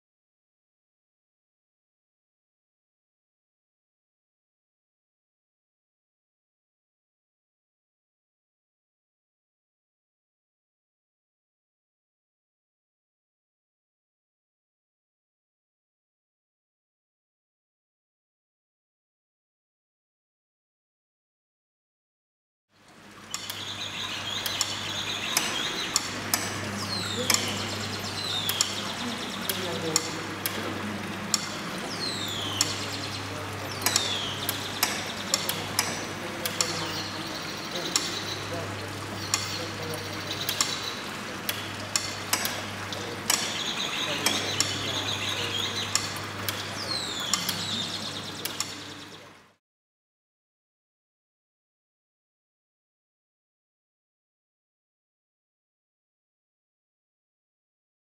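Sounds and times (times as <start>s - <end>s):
low mechanical hum: 22.8s - 49.6s
sharp mechanical clicks and ticks: 23.3s - 49.1s.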